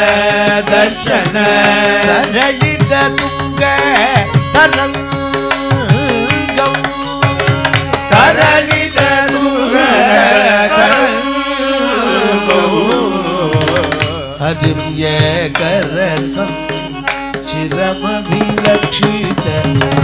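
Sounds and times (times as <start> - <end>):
hand drum rhythmic strokes: 0.0 - 9.6, 12.5 - 20.0
men singing devotional song: 0.0 - 20.0
steady held drone: 7.9 - 14.4.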